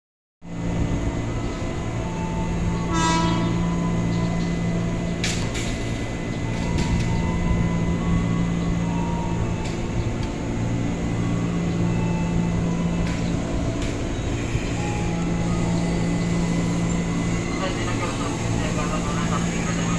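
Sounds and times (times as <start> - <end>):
electric train hum: 0.4 - 19.9
train horn toot: 2.8 - 3.8.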